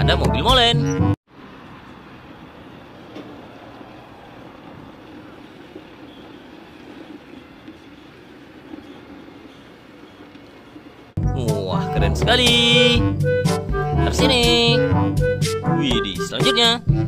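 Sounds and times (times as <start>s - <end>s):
truck diesel engine running: 1.3s - 11.2s.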